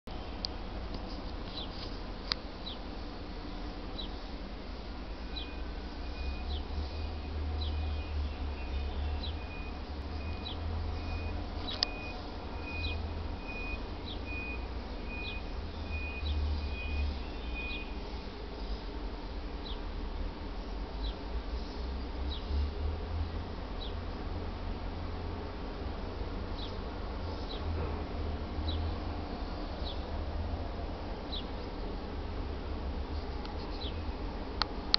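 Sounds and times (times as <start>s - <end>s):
high chirps of birds or insects: 2.5s - 3.0s, 3.8s - 4.3s, 5.1s - 18.0s, 28.6s - 30.1s, 31.2s - 31.7s, 33.6s - 34.1s.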